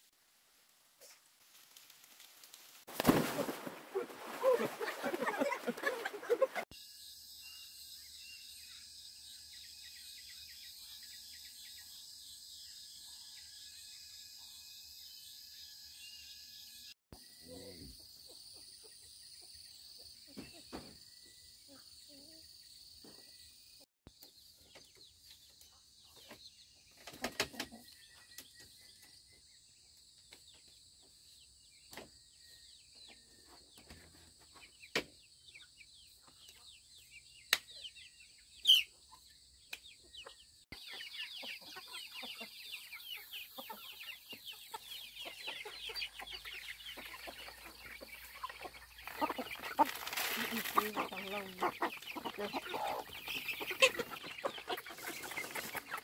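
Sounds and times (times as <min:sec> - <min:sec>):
hens and chicks cheeping and clucking: 0:03.2 - 0:06.7, 0:16.4 - 0:56.0
short bird chirps: 0:38.6 - 0:39.0.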